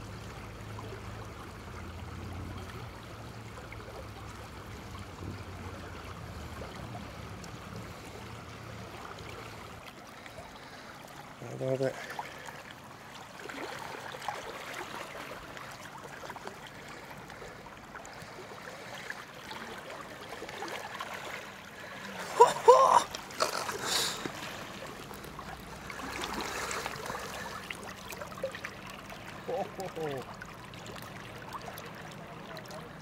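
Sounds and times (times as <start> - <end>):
river water lapping: 0.0 - 33.0
fish splashing: 12.0 - 32.7.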